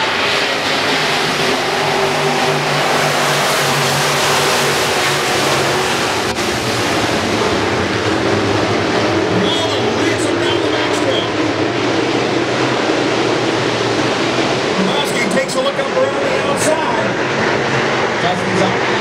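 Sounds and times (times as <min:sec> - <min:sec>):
race car engines passing: 0:00.0 - 0:19.0.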